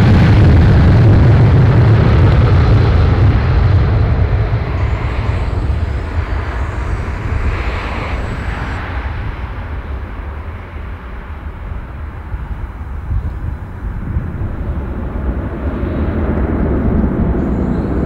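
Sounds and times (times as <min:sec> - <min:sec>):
jet engines at take-off: 0:00.0 - 0:18.0
faint high whine: 0:04.5 - 0:11.3, 0:17.4 - 0:18.0.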